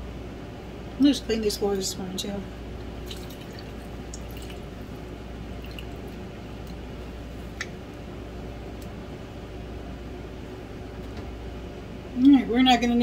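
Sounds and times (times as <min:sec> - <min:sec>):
steady low hum: 0:00.0 - 0:13.0
juice dripping: 0:02.8 - 0:08.1
wet squishing of lemons: 0:03.0 - 0:06.8.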